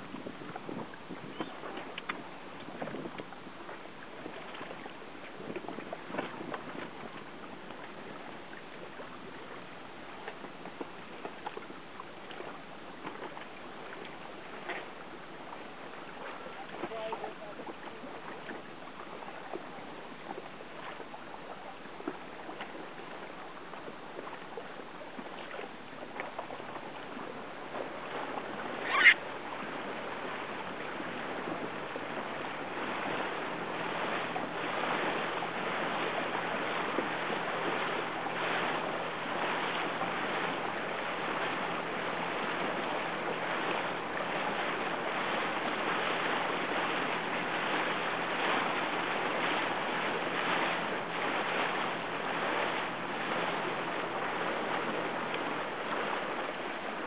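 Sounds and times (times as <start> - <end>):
water rushing: 0.0 - 57.0
wind around a boat: 0.0 - 57.0
sharp high squeal: 28.8 - 29.2.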